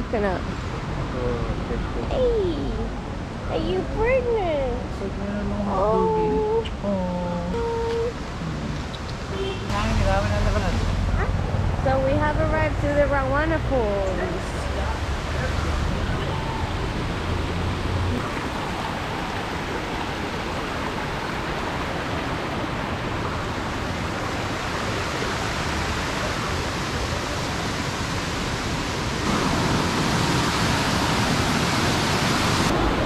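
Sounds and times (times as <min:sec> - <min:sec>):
waterfall rushing: 0:13.9 - 0:33.0.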